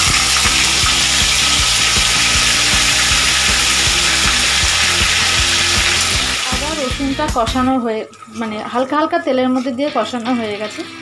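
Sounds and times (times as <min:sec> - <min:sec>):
paste sizzling in hot oil: 0:00.0 - 0:07.8.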